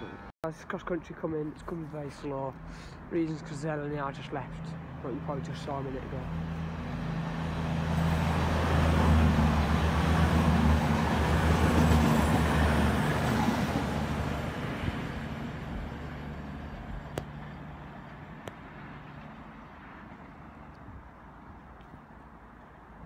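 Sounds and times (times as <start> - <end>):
diesel train engine hum: 0.0 - 21.4
wheel-on-rail roar: 4.6 - 20.8.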